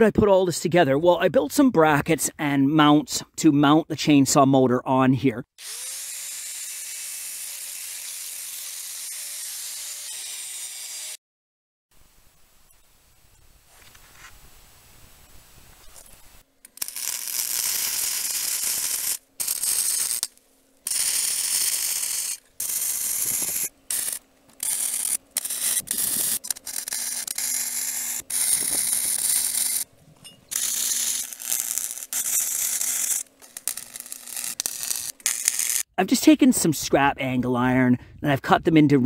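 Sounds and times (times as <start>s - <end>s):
welding arc crackling and hissing: 16.1s - 29.9s, 30.5s - 35.9s.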